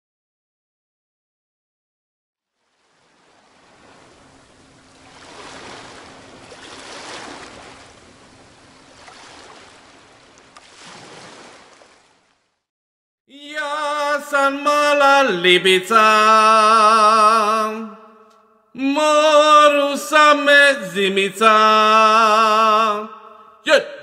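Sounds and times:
sea waves washing in: 2.5 - 12.6.

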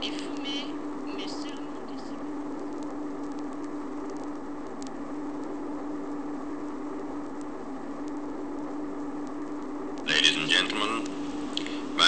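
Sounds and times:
jet airliner cabin drone: 0.0 - 12.0
faint clicks: 2.4 - 6.2.

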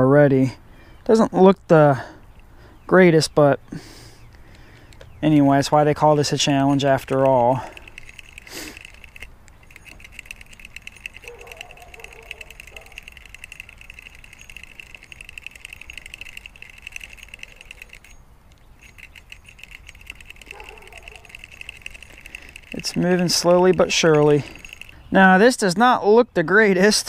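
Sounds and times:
fishing reel whirring tick: 4.2 - 25.5.

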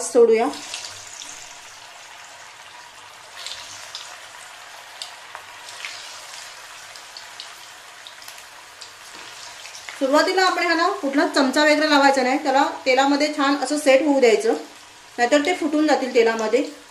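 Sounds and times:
oil sizzling: 0.0 - 16.9.

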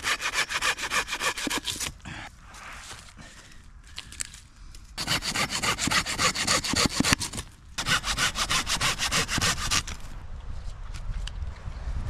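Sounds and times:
hand saw cutting wood: 0.0 - 1.9, 5.0 - 10.0.

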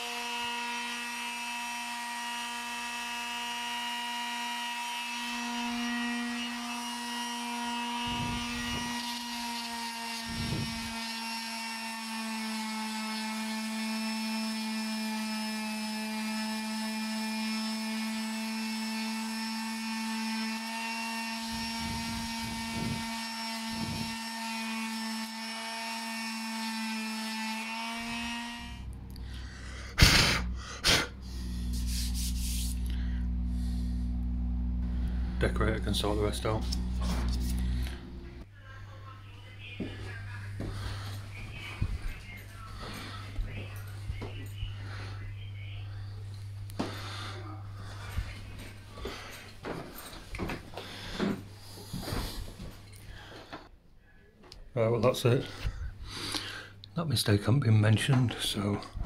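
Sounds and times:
orbital sander buzzing: 0.0 - 38.5
sander scuffing on wood: 2.3 - 29.0, 31.2 - 38.4, 39.6 - 45.3, 46.0 - 53.6.

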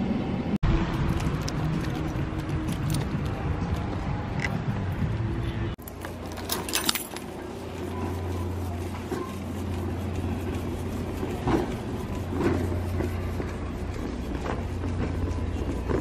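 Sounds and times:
wire basket rattling: 5.8 - 10.1
shopping cart wheels rumbling: 5.8 - 16.0.

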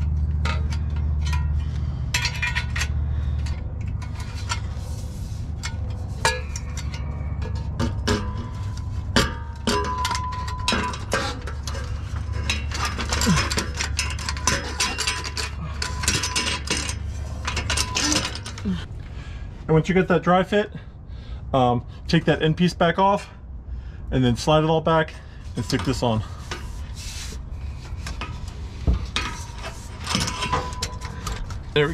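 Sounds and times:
metal pipes clinking and scraping: 0.0 - 18.9, 25.1 - 31.9
low hum: 0.0 - 22.1.

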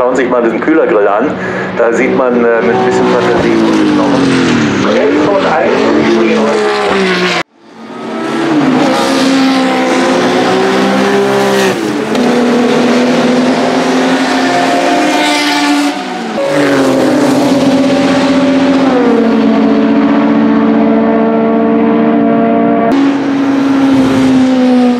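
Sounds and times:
race car engine accelerating: 1.4 - 24.9.

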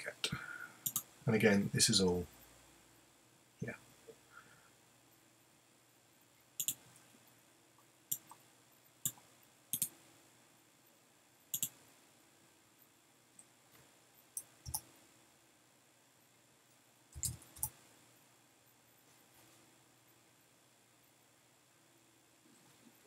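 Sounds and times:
computer mouse and keyboard clicks: 0.8 - 1.1, 6.6 - 6.8, 8.1 - 8.4, 9.0 - 10.0, 11.5 - 11.8, 14.4 - 14.9, 17.2 - 17.8.

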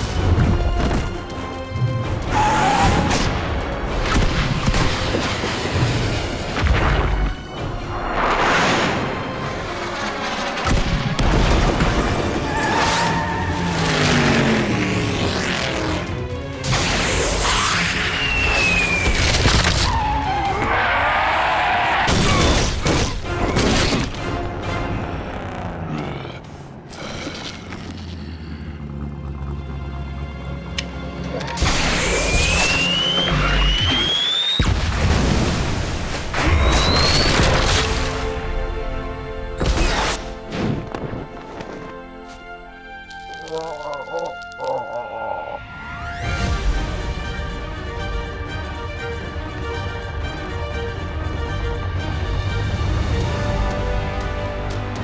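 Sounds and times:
dramatic action music: 0.0 - 43.5, 44.1 - 55.0
cartoon music score: 43.2 - 46.6.

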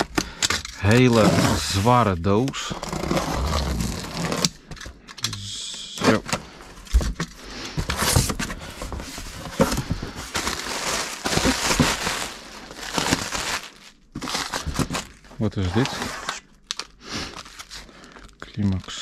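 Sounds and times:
cardboard rustling and tearing: 0.7 - 4.5, 7.8 - 16.4.

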